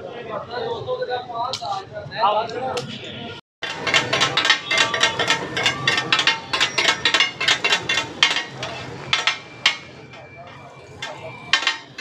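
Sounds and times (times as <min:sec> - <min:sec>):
metal utensils clinking and clattering: 0:03.6 - 0:12.0.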